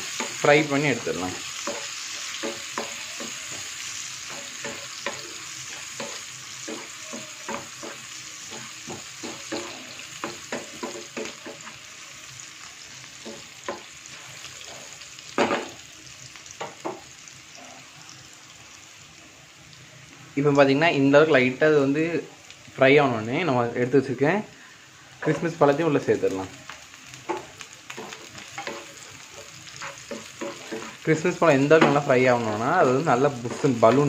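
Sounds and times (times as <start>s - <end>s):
nuts sizzling in hot ghee: 0.0s - 34.0s
spatula clicking and tapping pan: 1.6s - 11.8s, 13.2s - 13.9s, 26.7s - 31.0s.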